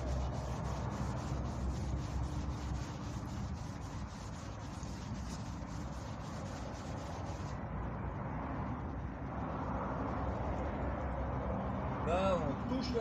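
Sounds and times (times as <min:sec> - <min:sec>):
pad rubbing painted metal: 0:00.0 - 0:07.6
continuous low rumble: 0:00.0 - 0:13.0.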